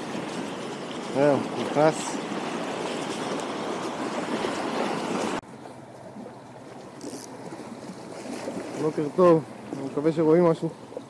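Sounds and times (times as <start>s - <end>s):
running water rushing: 0.0s - 11.0s
faint outdoor hiss: 5.5s - 11.0s.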